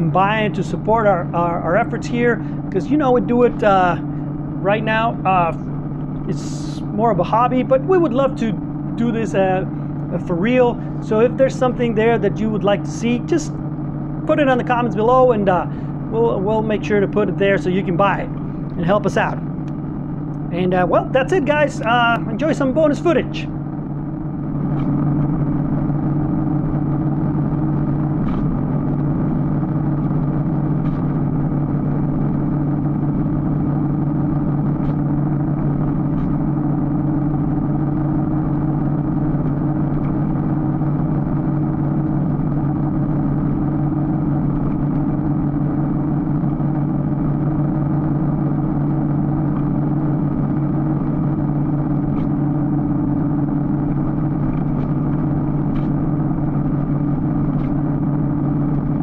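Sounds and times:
motorcycle engine cruising: 0:00.0 - 0:59.0.

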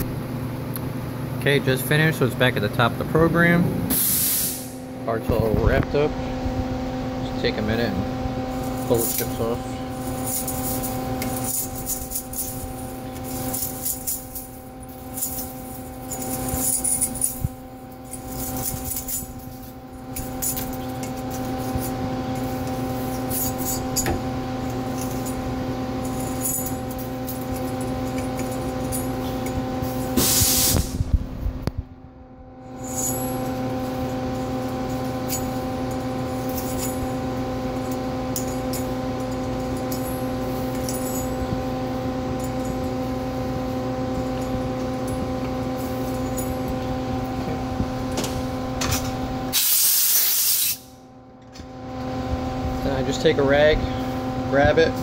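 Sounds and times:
machine hum: 0:00.0 - 0:49.6
loud hiss: 0:03.9 - 0:04.8, 0:30.2 - 0:31.0, 0:49.6 - 0:50.8.

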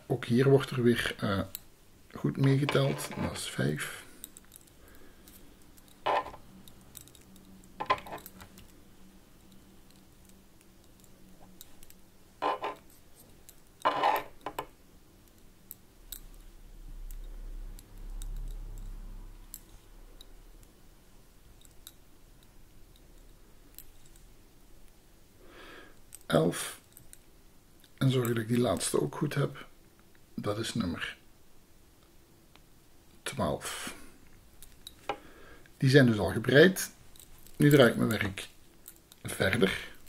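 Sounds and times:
metal knitting needles clicking: 0:21.6 - 0:24.3.

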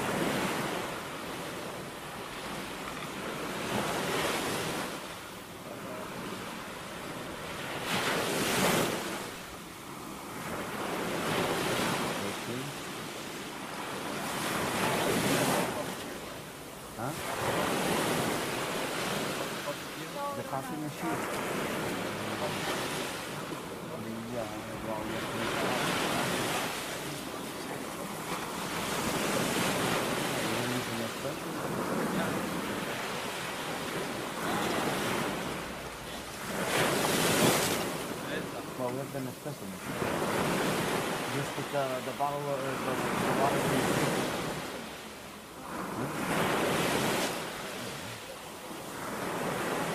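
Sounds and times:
ocean surf breaking: 0:00.0 - 0:49.9.

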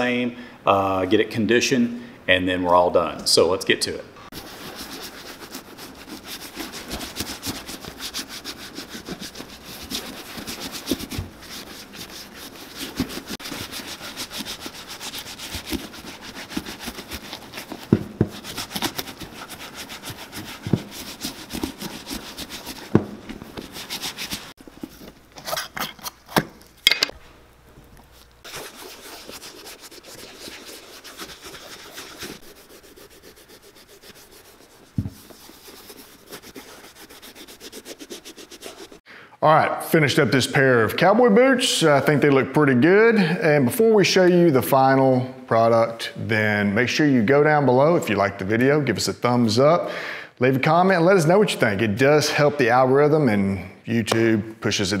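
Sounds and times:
rubbing leather boot: 0:04.3 - 0:25.6, 0:28.0 - 0:39.0.

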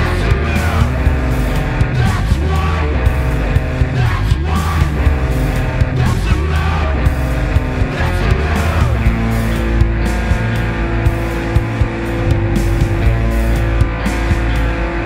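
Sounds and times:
music with steady beat: 0:00.0 - 0:15.0.

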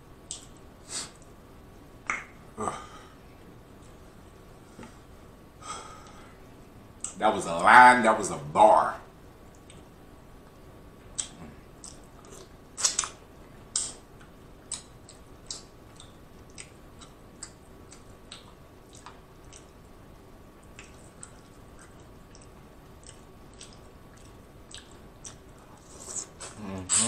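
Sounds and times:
wet sticky eating sounds: 0:20.6 - 0:27.0
mouth sounds: 0:25.8 - 0:27.0.

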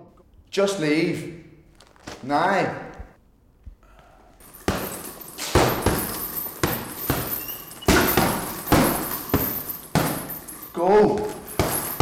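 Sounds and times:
chain jingling: 0:04.4 - 0:12.0
gloves thudding on heavy bag: 0:04.4 - 0:12.0.

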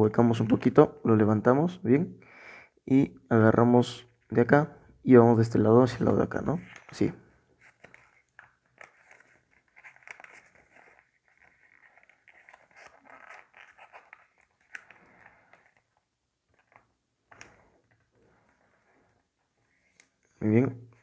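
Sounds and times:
paper crackling when pressed: 0:06.6 - 0:17.6
paper crinkling while folded: 0:06.6 - 0:19.0.

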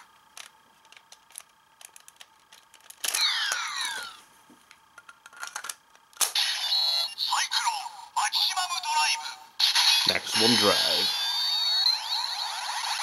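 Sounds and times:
plastic toy clicks and rattles: 0:00.3 - 0:04.0, 0:05.0 - 0:06.4.

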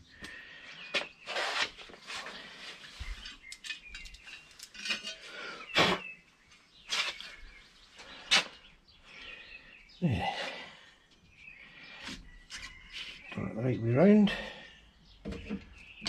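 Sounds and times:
metal plate and tools clinking: 0:03.2 - 0:06.0.

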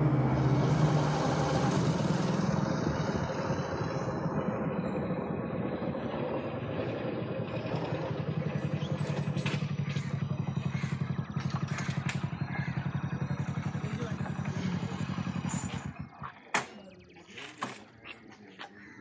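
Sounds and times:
motorcycle engine idling: 0:00.0 - 0:17.2
sharp clicks and clatters: 0:11.3 - 0:12.4.

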